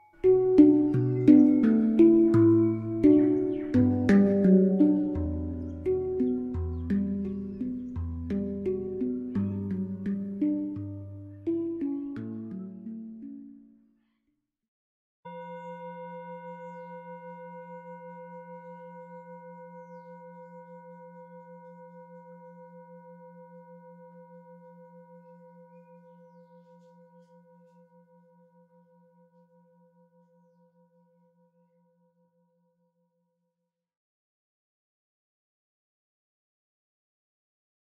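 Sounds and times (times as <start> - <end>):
singing bowl ringing: 0.0 - 1.6, 15.3 - 30.8.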